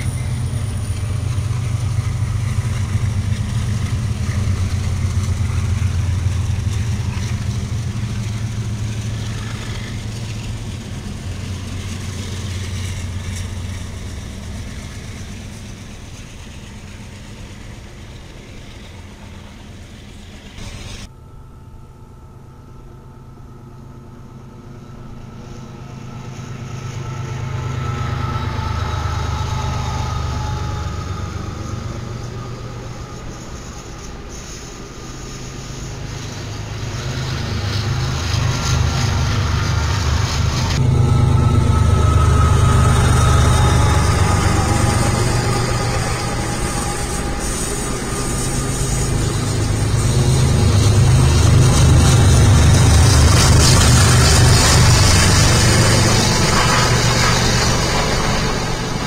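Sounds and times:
diesel train rumbling: 0.0s - 59.0s.

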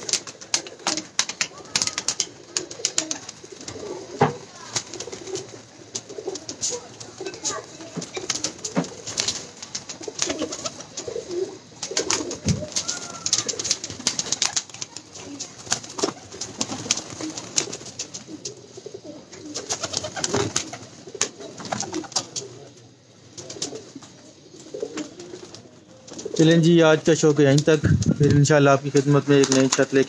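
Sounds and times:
pigeons cooing: 0.0s - 26.8s.

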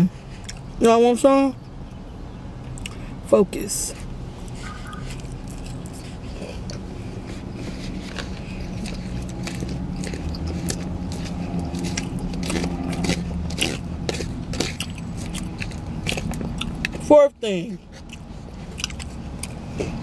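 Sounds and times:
steady low hum: 0.0s - 20.0s
wet mouth clicks: 2.7s - 3.0s, 8.1s - 17.0s, 17.9s - 20.0s
lettuce crunching while chewing: 4.4s - 17.1s, 17.8s - 20.0s.

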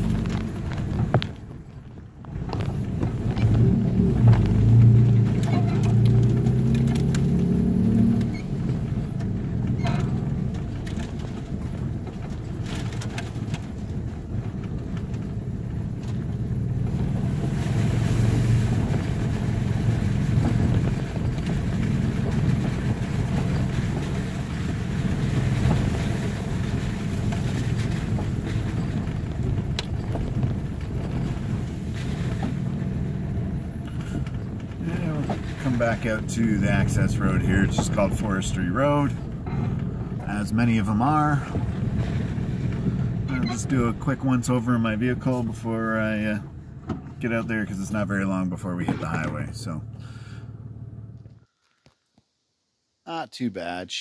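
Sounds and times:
car engine running at low speed: 0.0s - 52.3s
tyres on rough dirt track: 0.0s - 52.4s
sharp knocks and rattles: 8.2s - 16.9s.

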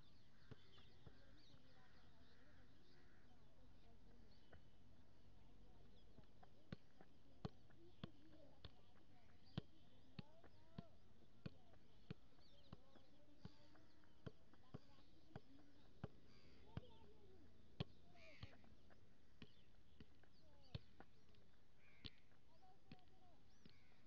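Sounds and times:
birds calling: 0.0s - 4.8s, 7.8s - 24.0s
football being kicked: 6.7s - 17.2s.

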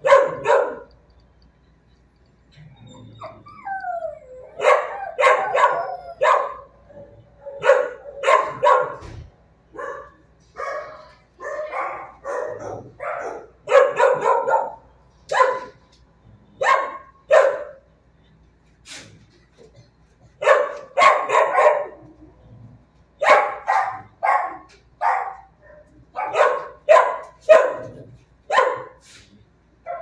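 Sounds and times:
dog barking: 0.0s - 0.9s, 4.6s - 6.7s, 7.5s - 9.1s, 9.7s - 15.8s, 16.6s - 17.8s, 20.4s - 22.0s, 23.2s - 29.0s
dog whining: 2.5s - 6.2s.

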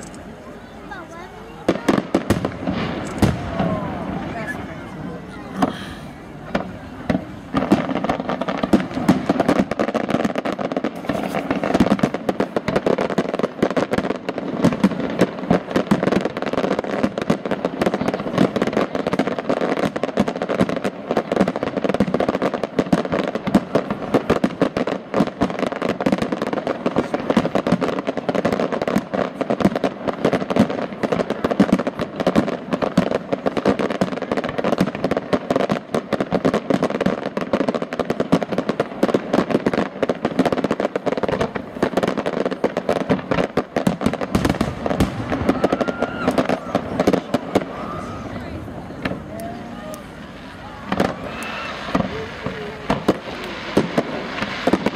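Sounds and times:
fireworks bangs and pops: 0.0s - 54.9s.

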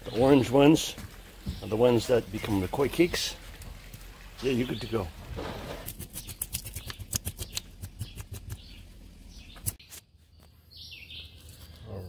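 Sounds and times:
knife scraping fish scales: 5.7s - 8.6s.

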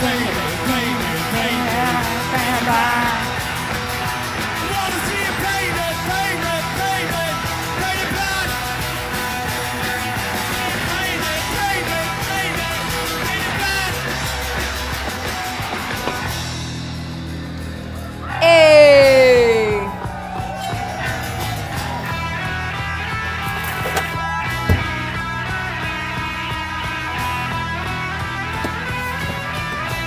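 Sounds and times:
male singing lead: 0.0s - 3.4s, 4.6s - 8.6s, 18.4s - 20.0s
live rock band playing: 0.0s - 17.8s.

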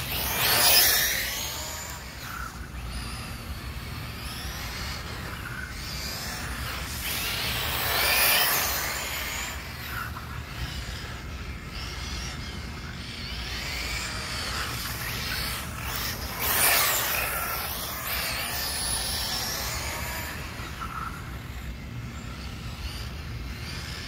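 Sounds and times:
rc car electric motor whining: 0.0s - 24.0s.

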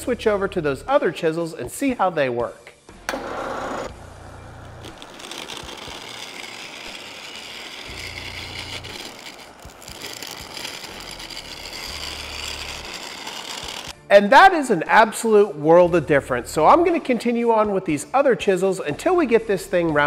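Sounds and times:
chisel cutting wood on lathe: 3.1s - 14.0s
lathe motor hum: 3.1s - 14.0s.

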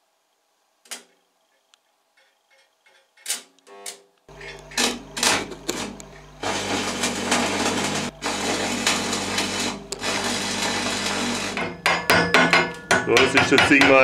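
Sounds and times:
arc welding crackle: 0.8s - 11.8s.

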